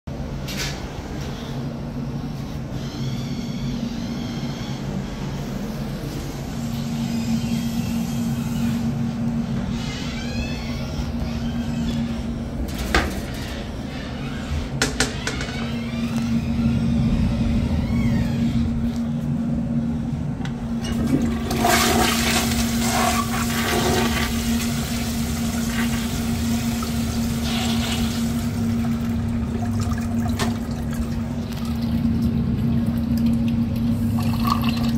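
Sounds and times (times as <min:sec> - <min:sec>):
water rushing into toilet bowl: 0:20.9 - 0:32.0.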